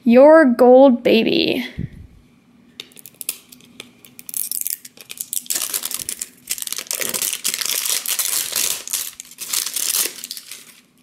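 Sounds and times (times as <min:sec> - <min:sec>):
plastic wrapping crinkling and tearing: 0:02.8 - 0:11.0.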